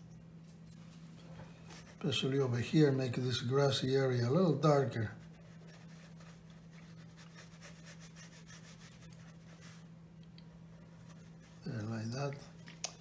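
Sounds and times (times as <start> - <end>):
steady low hum: 0.0 - 13.0
brush strokes on paper: 0.7 - 2.3, 4.4 - 9.9, 10.7 - 12.1.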